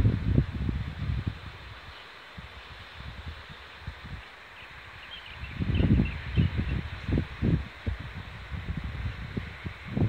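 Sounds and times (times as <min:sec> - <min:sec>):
faint steady hiss: 0:00.0 - 0:10.0
wind buffeting microphone: 0:00.0 - 0:10.0.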